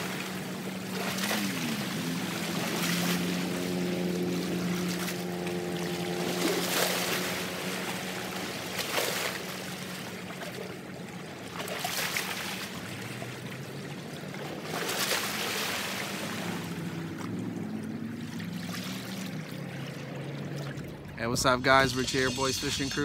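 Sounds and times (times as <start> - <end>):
water surging against rocks: 0.0 - 21.2
steady low hum: 19.1 - 23.0.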